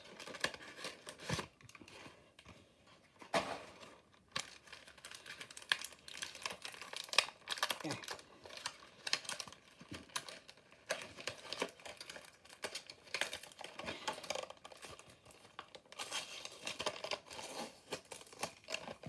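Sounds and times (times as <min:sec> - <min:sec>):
packaging being torn and crinkled: 0:00.0 - 0:02.0, 0:03.7 - 0:19.0.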